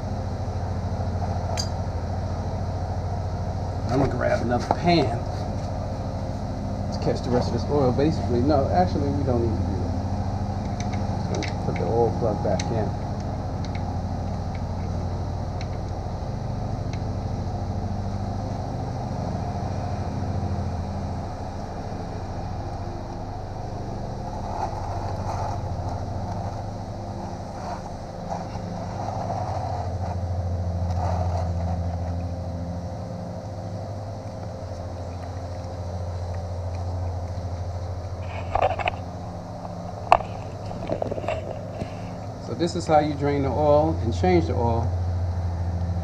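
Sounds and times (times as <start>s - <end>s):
low mechanical rumble: 0.0s - 46.0s.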